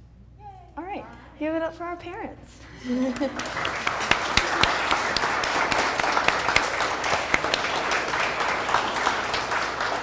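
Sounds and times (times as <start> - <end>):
audience applauding: 3.0 - 10.0.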